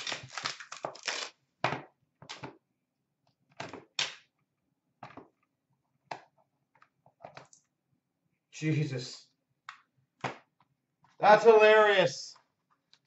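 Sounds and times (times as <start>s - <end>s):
cardboard and wrapper rustling: 0.0s - 1.4s.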